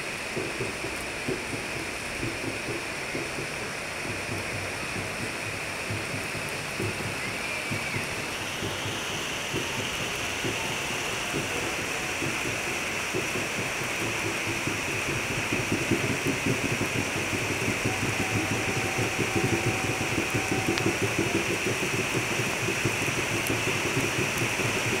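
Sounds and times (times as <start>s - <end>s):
rain pattering on leaves: 0.0s - 25.0s
steady high hiss: 0.0s - 25.0s.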